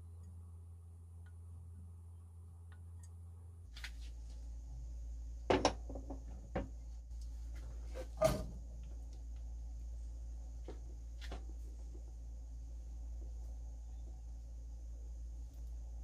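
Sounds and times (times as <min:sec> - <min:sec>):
faint high whine: 0:00.0 - 0:16.0
low hum: 0:00.0 - 0:16.0.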